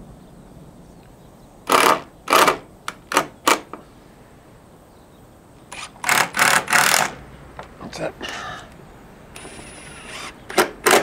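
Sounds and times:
power driver driving screws: 1.7s - 3.7s, 5.7s - 7.2s, 9.4s - 11.0s.

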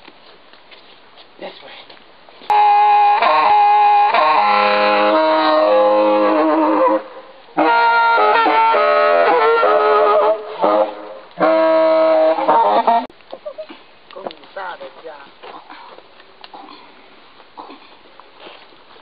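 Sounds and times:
accordion melody: 2.5s - 7.0s, 7.6s - 13.1s.

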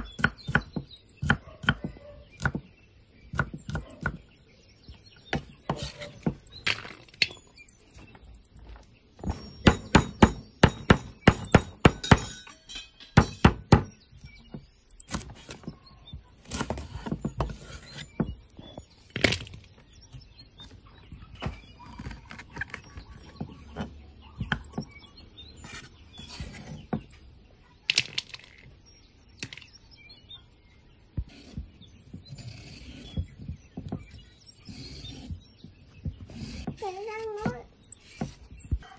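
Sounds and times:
cleaver chopping on wooden board: 0.0s - 2.7s, 3.3s - 4.2s, 9.7s - 12.3s.

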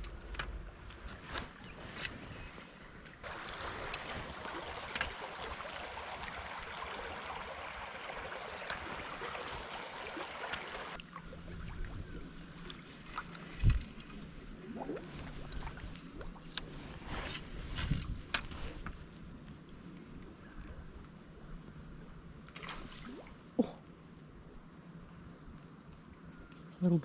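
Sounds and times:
creek water running: 0.6s - 19.2s.

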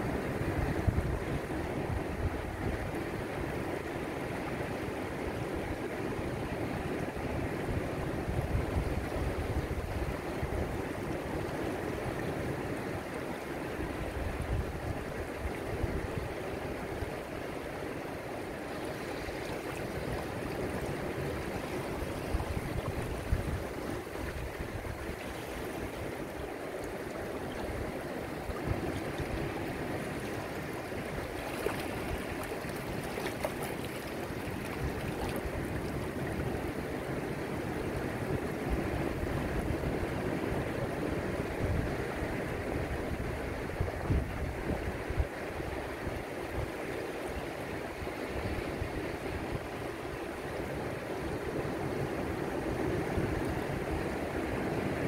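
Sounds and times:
water washing over rocks: 18.1s - 37.0s.

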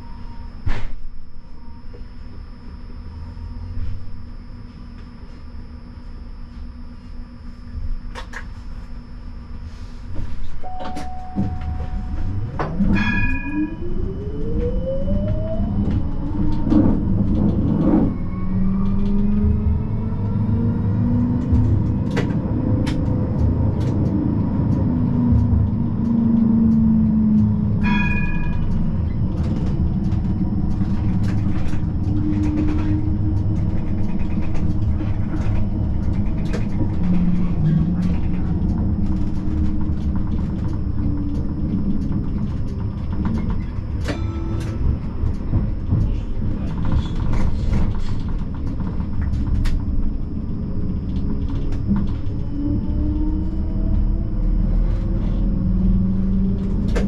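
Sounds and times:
tram running rumble: 0.0s - 57.0s
brief ringing tone: 10.6s - 15.4s.

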